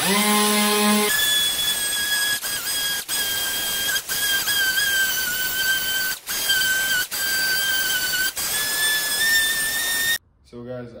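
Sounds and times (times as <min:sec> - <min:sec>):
pneumatic sander whining: 0:00.0 - 0:10.2.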